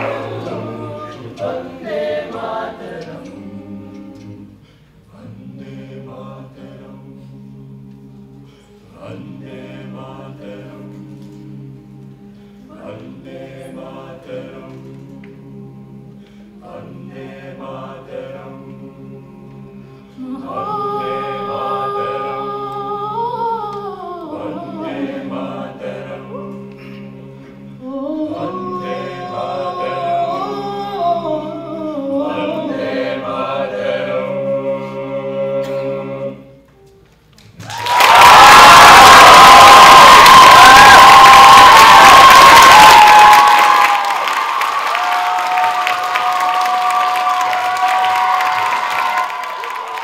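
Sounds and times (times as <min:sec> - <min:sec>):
male a cappella group singing: 0:00.0 - 0:36.7.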